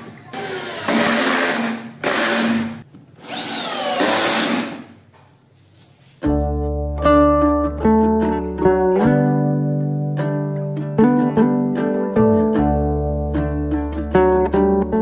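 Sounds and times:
cordless drill driving screws: 0.3 - 4.9
acoustic guitar music: 6.0 - 15.0.

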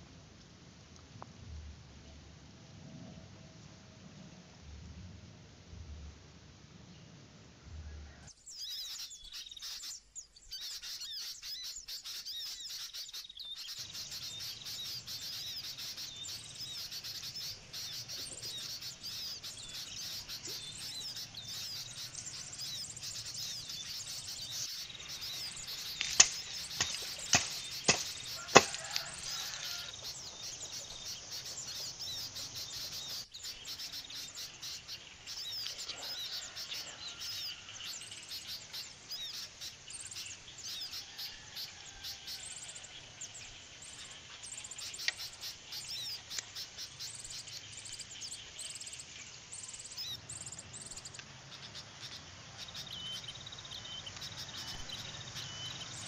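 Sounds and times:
birds chirping: 7.8 - 56.0
insects calling: 8.4 - 56.0
knife chopping bamboo: 26.0 - 29.0.

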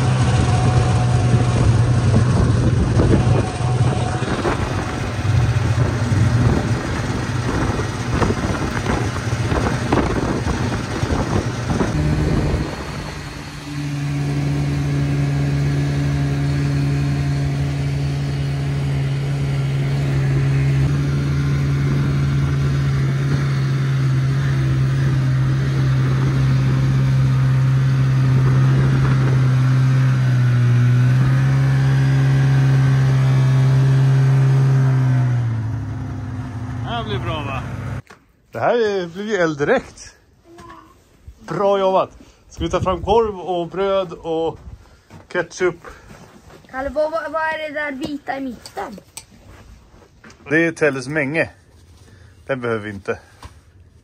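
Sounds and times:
snowmobile engine running: 0.0 - 38.0.

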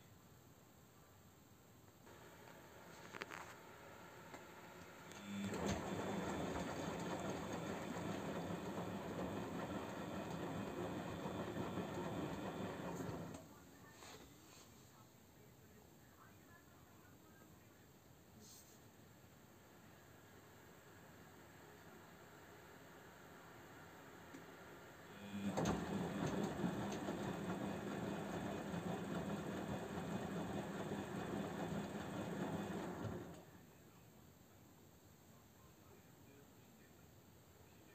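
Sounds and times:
washing machine drum running: 4.0 - 13.4, 25.2 - 33.5.

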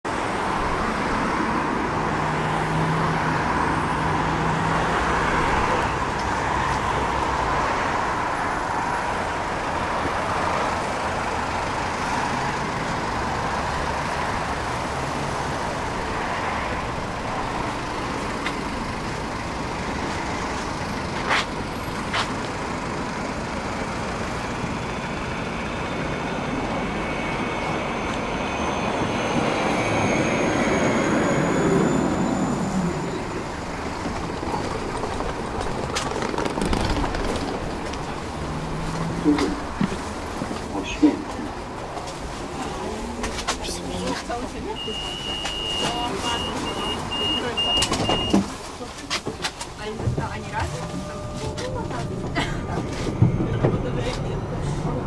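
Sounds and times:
city street traffic: 0.0 - 55.0
tram high electric whine: 0.1 - 42.1, 49.6 - 55.0.

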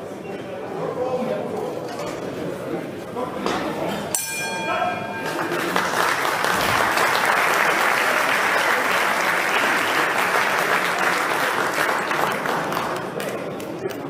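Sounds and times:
boxing ring bell: 4.1 - 5.8
audience applauding: 5.2 - 14.0.

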